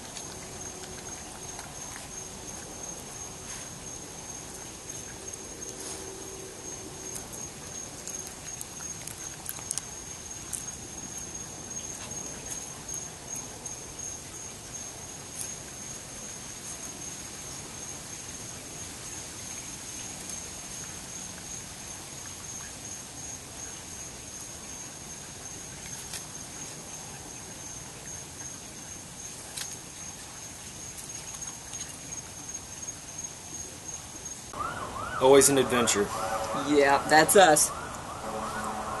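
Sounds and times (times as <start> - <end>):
raccoon chewing apple: 0.0 - 17.0, 25.4 - 32.8
cricket trilling: 0.0 - 39.0.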